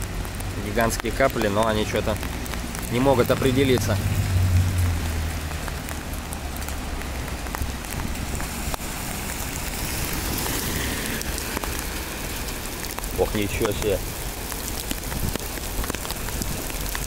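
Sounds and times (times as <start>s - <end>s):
heavy rain on asphalt: 0.0s - 17.0s
low rumble: 2.6s - 7.0s.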